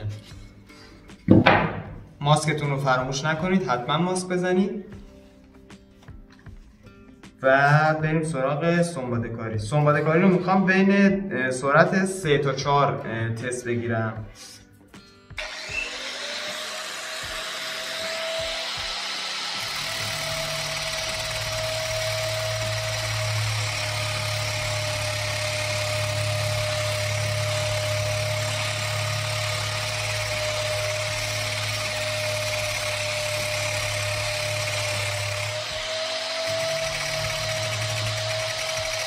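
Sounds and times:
polisher motor whining: 15.4 - 39.0.

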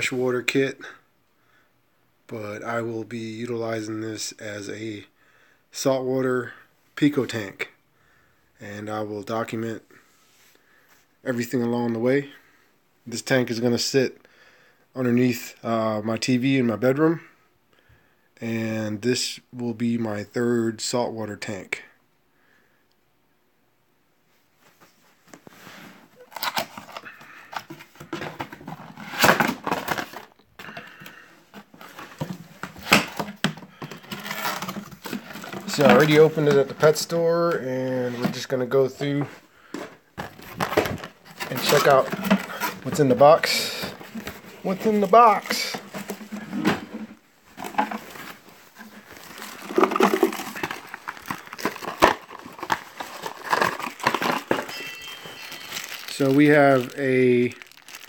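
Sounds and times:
cardboard box being handled: 38.1 - 57.0.

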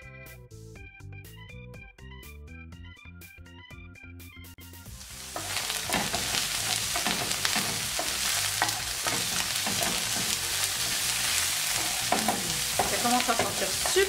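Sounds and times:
mushrooms sizzling in a pan: 4.9 - 14.0
wooden spoon scraping a pan: 5.2 - 14.0.

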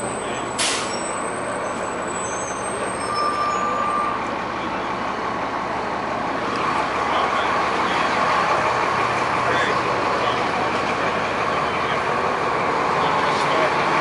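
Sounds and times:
thin high tone: 0.0 - 4.3
motor vehicles idling: 0.0 - 14.0
street traffic noise: 0.0 - 14.0.

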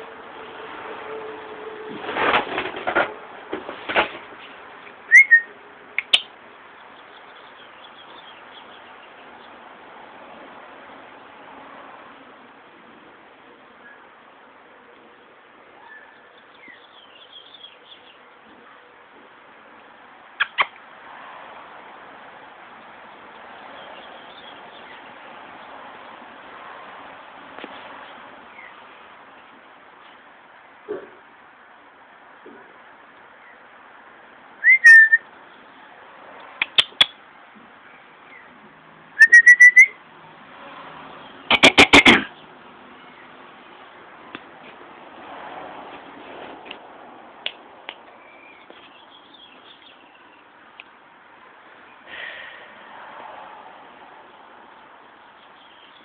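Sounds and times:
person whistling: 5.1 - 5.5, 34.6 - 35.2, 39.2 - 39.9
small birds chirping: 5.1 - 9.6, 15.8 - 18.3, 20.4 - 20.8, 28.0 - 30.8, 36.5 - 37.2, 48.0 - 50.9, 54.8 - 56.0
mouth clicks: 6.0 - 6.3, 20.4 - 20.8, 36.6 - 37.2, 41.5 - 42.3
sharp clicks: 6.0 - 6.3.

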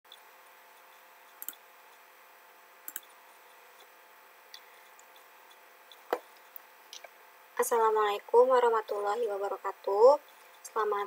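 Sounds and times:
faint room hiss: 0.1 - 11.0
computer mouse clicking: 1.3 - 1.6, 2.9 - 3.2.

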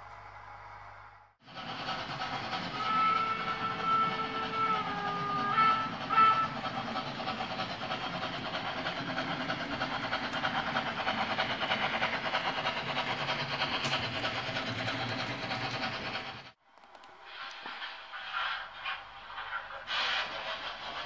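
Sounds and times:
model train wheels rattling: 1.5 - 16.6.

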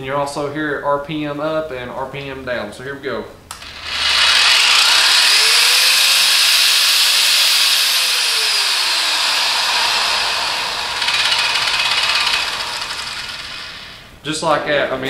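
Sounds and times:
power tool motor whine: 3.5 - 14.1.

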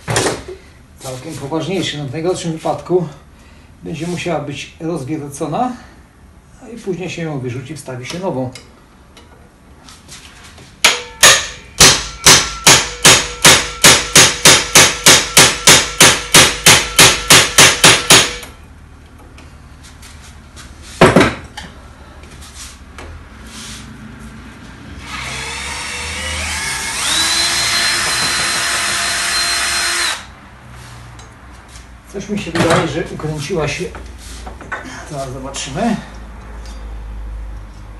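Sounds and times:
hammer striking impact driver: 10.8 - 18.6, 25.0 - 30.3
electric drill running: 25.0 - 30.3.

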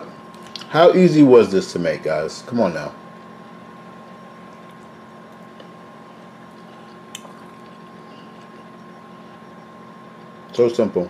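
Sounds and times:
faint hum: 0.0 - 11.0
quiet eating sounds: 3.2 - 10.6.

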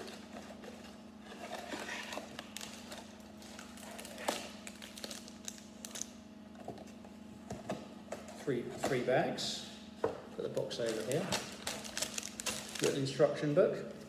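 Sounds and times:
plastic bags rustling: 10.5 - 13.1.

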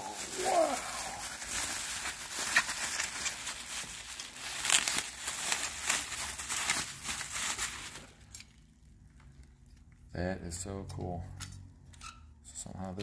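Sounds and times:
bubble wrap crinkling: 0.0 - 10.0.

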